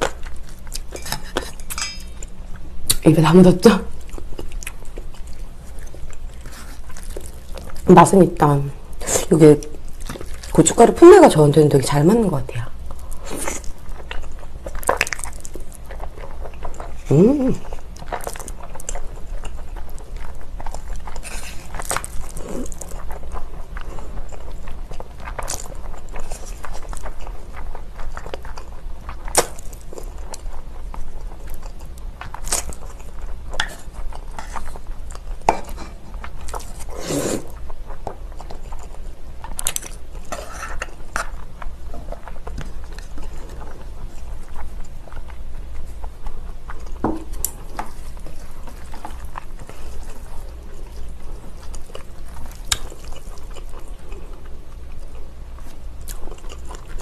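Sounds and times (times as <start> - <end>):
steady low hum: 0.0 - 57.0
slurping and chewing noodles: 12.8 - 57.0.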